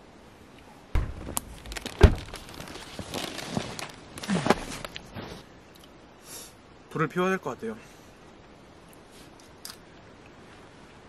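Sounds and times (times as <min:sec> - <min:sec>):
thumps: 0:01.0 - 0:03.3
clothing rustling: 0:01.0 - 0:05.5.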